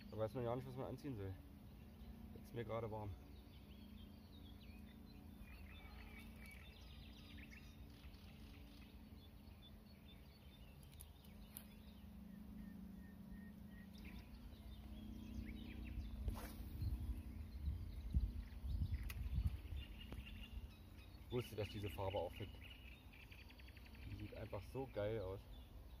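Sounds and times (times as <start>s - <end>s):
small birds chirping: 0.0s - 26.0s
wind rumbling on microphone: 14.2s - 20.9s
fishing rod swish: 16.2s - 16.8s.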